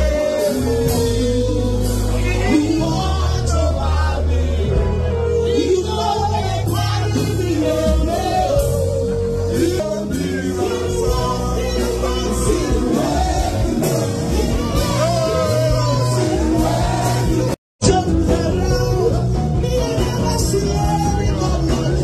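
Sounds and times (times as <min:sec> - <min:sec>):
loud music with singing voice: 0:00.0 - 0:22.0.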